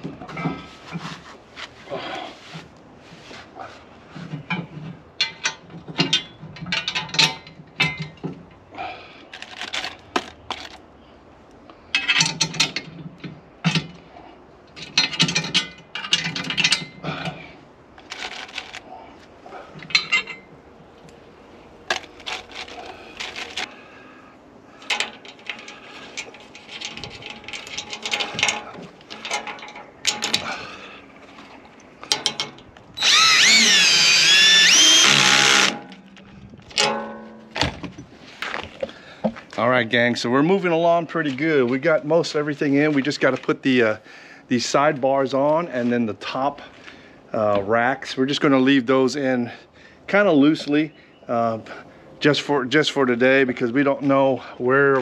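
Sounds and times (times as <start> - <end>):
metal parts clinking: 11.9 - 13.0, 18.0 - 18.9, 19.8 - 20.5, 21.8 - 23.7, 24.8 - 30.6.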